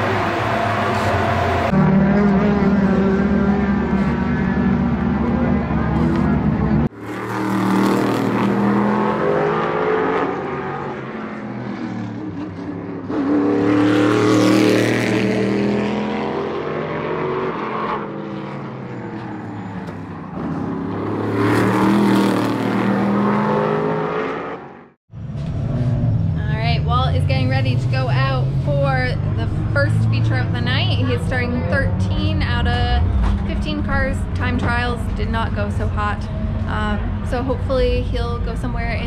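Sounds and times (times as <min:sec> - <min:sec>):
race car engine passing: 0:00.0 - 0:37.3.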